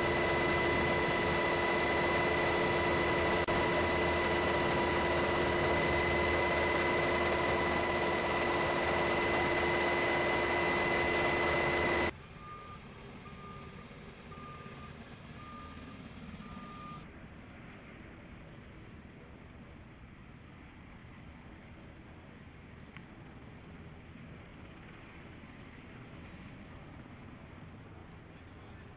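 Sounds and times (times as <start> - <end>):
vehicle reversing alarm beeps: 0.0 - 17.1
aircraft engine with high whine: 0.0 - 28.9.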